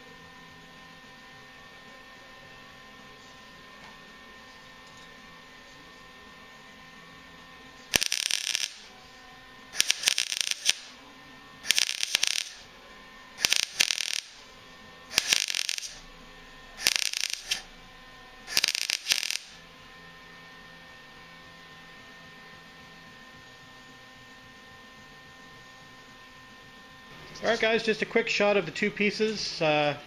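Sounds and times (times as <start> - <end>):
welding arc crackle: 7.9 - 8.9, 9.7 - 11.0, 11.6 - 12.7, 13.4 - 16.1, 16.8 - 17.7, 18.4 - 19.6.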